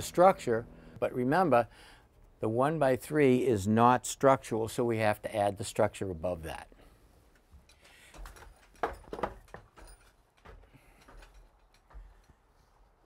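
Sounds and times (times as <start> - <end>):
light knocks and handling noises: 7.3 - 12.8.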